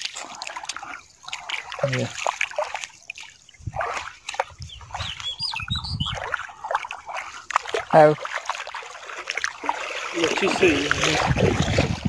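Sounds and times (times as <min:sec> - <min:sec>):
river water splashing: 0:00.0 - 0:12.0
bird chirps: 0:04.6 - 0:06.3.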